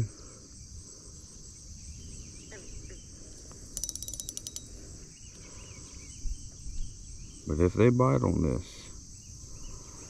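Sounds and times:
fishing reel drag clicking: 3.7s - 4.8s.

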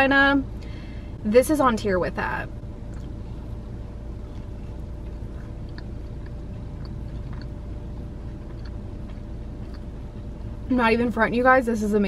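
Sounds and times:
low hum inside car: 0.0s - 12.0s
person chewing: 2.8s - 10.5s.

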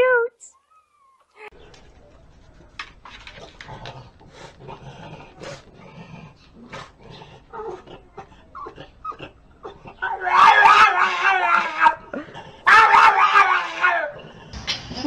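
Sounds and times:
dog whimpering and grunting: 3.4s - 10.2s.

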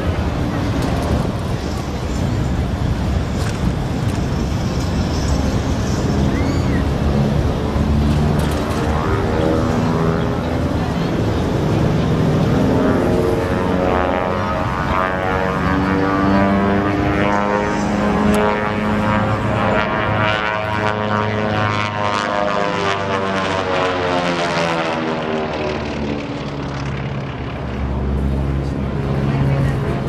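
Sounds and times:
propeller drone: 0.0s - 30.0s
radial aircraft engines: 0.0s - 30.0s.

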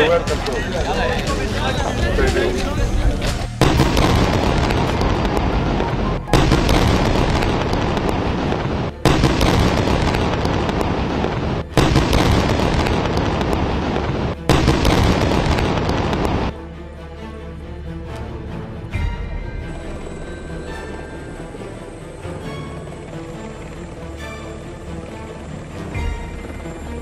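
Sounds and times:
explosions with crackling rumble: 3.6s - 16.5s.

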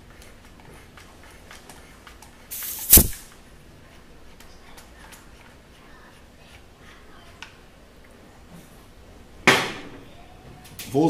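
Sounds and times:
compressed air burst: 2.5s - 3.3s
short hiss: 2.5s - 3.3s.

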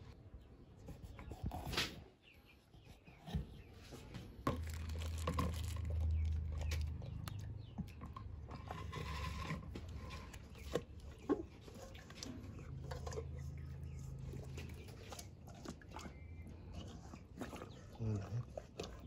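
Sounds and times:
wet squelches of handled fish: 4.5s - 9.0s
low handling rumble: 4.5s - 11.2s.

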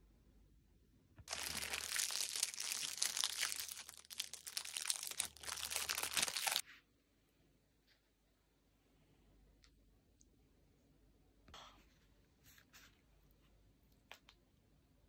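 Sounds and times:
packaging crinkling: 1.3s - 6.6s.

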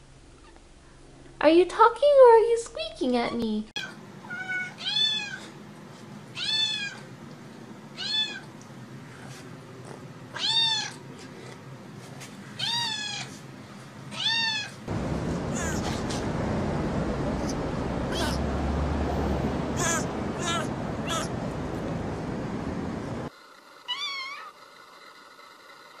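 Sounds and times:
kitten meowing: 3.8s - 5.5s, 6.4s - 7.0s, 8.0s - 8.4s, 10.4s - 11.0s, 12.6s - 13.3s, 14.2s - 14.8s, 19.8s - 21.3s.

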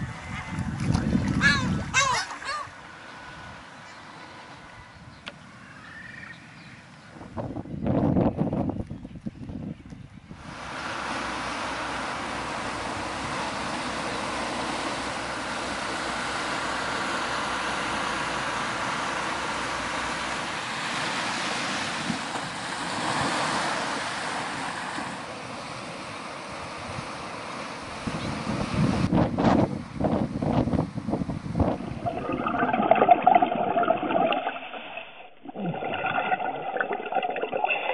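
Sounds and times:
ocean surf washing ashore: 20.6s - 26.2s.

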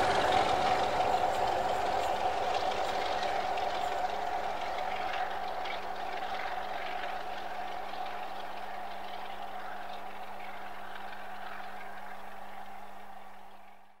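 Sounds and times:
train rumbling: 0.0s - 13.9s.

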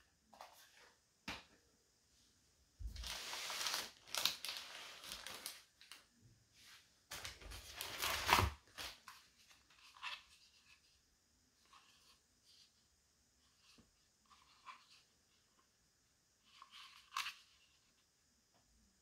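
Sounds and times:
packaging crinkling and tearing: 3.0s - 6.0s, 7.1s - 9.0s.

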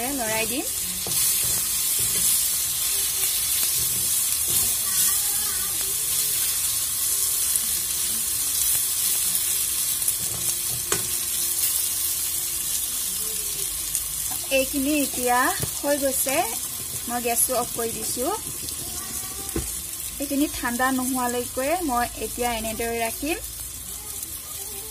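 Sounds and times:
spatula stirring: 0.0s - 6.8s
food sizzling in oil: 0.0s - 24.9s.

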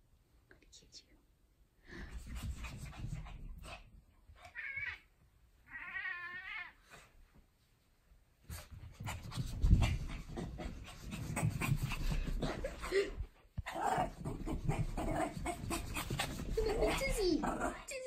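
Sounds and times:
dog scampering on carpet: 2.1s - 4.5s, 8.4s - 17.4s
dog panting: 8.5s - 17.6s.

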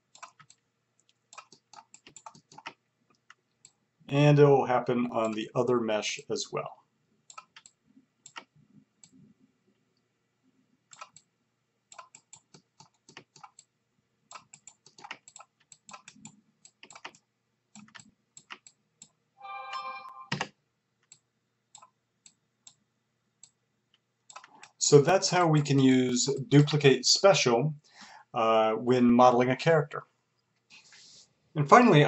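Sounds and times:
mouse and keyboard clicks: 1.4s - 3.4s, 10.9s - 11.3s, 11.9s - 13.7s, 14.3s - 17.2s, 24.3s - 24.8s.

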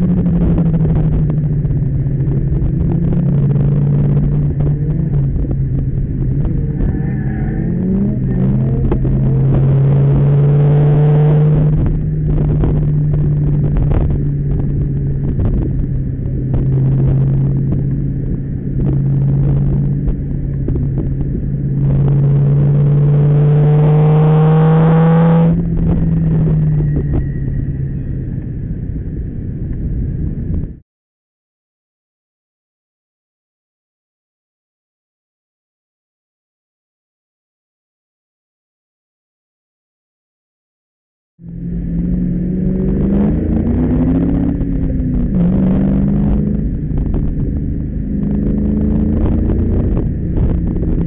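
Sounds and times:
car engine revving: 0.0s - 29.7s, 41.4s - 51.0s.

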